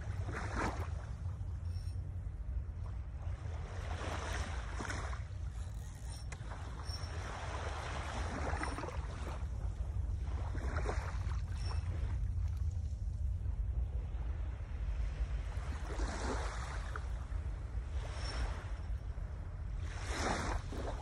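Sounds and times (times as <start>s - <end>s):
wind rumbling on microphone: 0.0s - 21.0s.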